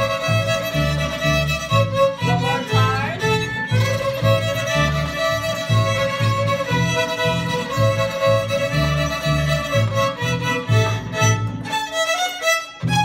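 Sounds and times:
plucked upright bass: 0.0 - 12.0
fiddles playing a melody: 0.0 - 13.0.

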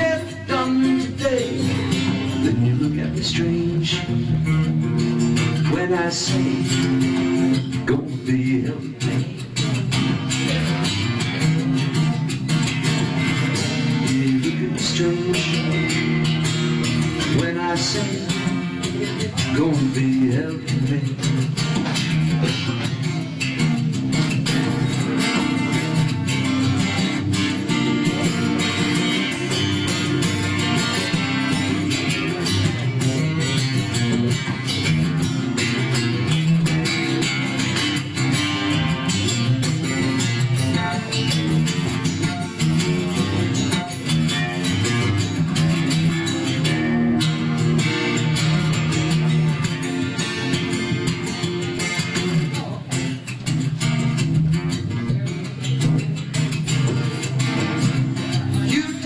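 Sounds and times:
acoustic guitar strumming: 0.0 - 59.0.

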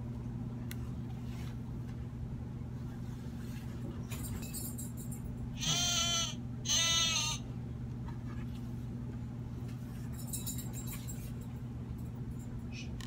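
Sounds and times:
electronic sheep bleat: 5.6 - 7.4.

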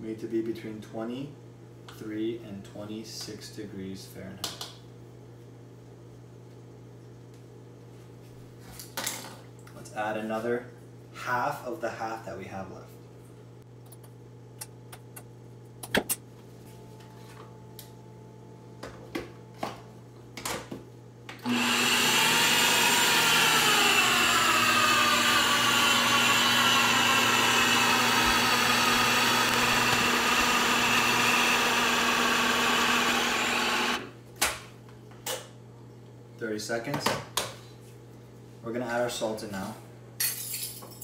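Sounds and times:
blender motor running: 21.4 - 34.2.

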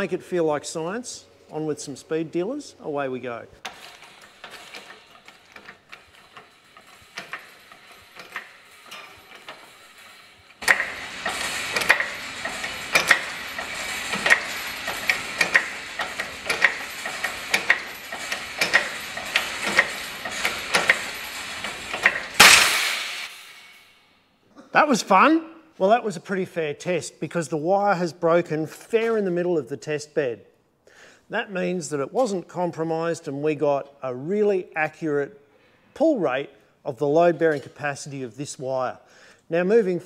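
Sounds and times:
mechanical clicks and creaks: 3.6 - 22.4.

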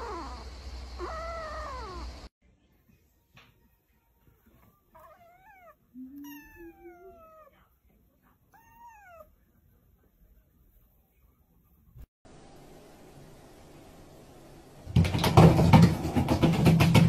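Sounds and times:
kitten meowing: 5.0 - 7.5, 8.5 - 9.3.

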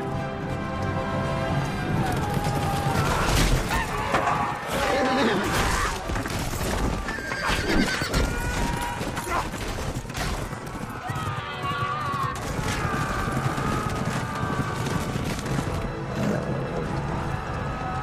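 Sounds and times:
film score music: 0.0 - 6.7, 12.4 - 18.0
galloping horses: 0.0 - 18.0
horses neighing: 1.8 - 9.7.

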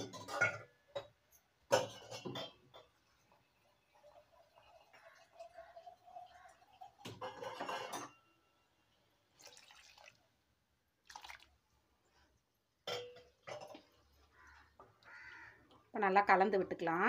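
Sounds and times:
water pouring into a pot: 2.7 - 7.8, 9.2 - 10.4, 11.0 - 11.7.

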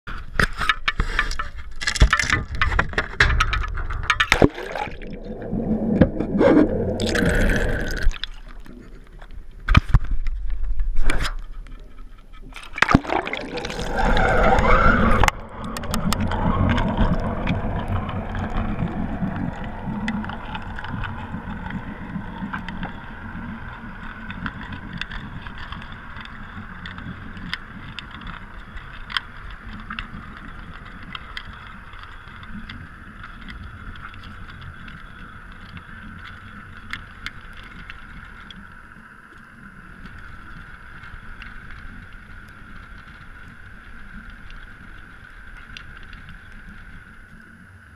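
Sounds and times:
muffled rush of water: 0.1 - 47.9
splash and bubbling underwater: 1.0 - 11.3, 12.4 - 38.9.

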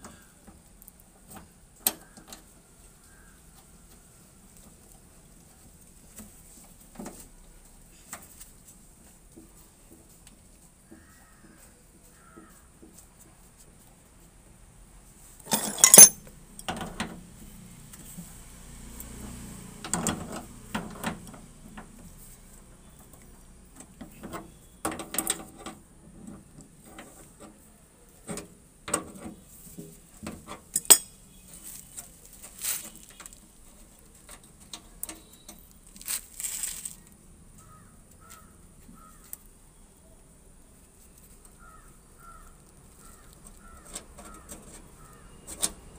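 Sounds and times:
metal tools clinking: 15.5 - 16.3, 30.7 - 31.2.

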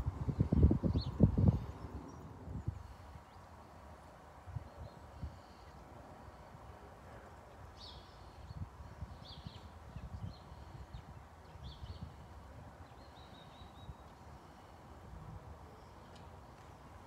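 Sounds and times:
small birds chirping: 0.2 - 3.7, 7.6 - 12.2.

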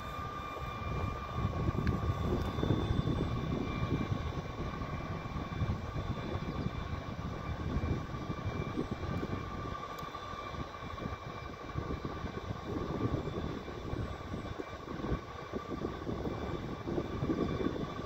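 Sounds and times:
high-pitched equipment hum: 0.0 - 18.0
wind rumble on microphone: 0.0 - 18.0.

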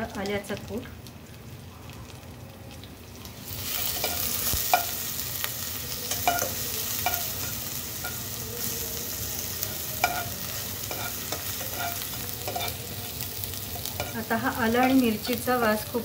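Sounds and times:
paste sizzling in hot ghee: 2.3 - 16.0
metal spoon clinking on pan: 6.1 - 8.2, 10.0 - 12.8.

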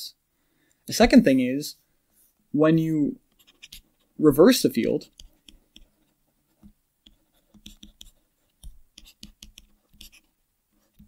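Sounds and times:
stylus tapping and scratching: 3.3 - 4.2, 4.8 - 11.0.

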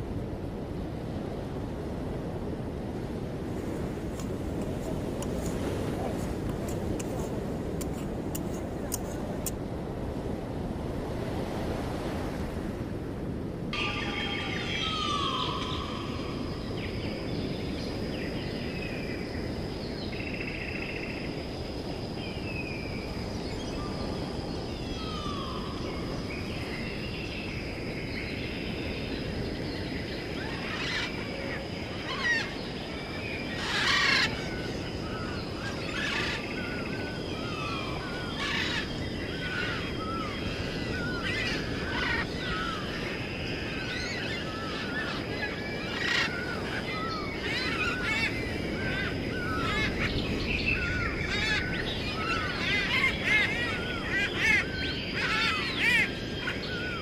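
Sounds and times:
birds chirping and calling: 33.5 - 57.0.

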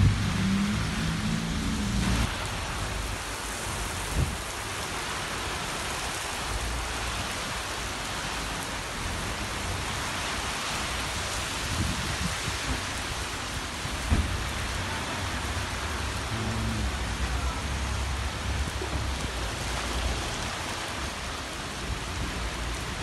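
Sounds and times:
low rumble: 0.0 - 3.1
rain on wet streets: 0.0 - 23.0.

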